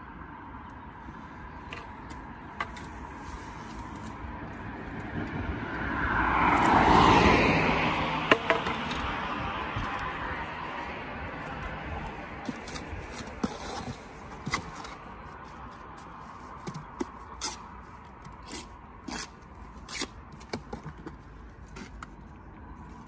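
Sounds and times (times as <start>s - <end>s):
trowel scraping and knocking brick: 12.4s - 15.0s.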